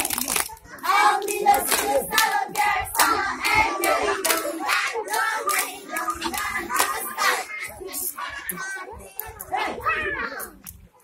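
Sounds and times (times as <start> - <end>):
hands clapping in steady beat: 0.0 - 7.4
children singing a chant: 0.7 - 10.5.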